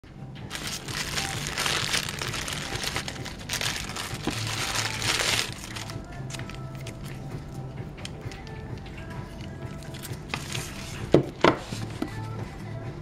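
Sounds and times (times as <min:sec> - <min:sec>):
plastic bag crinkling: 0:00.5 - 0:07.0.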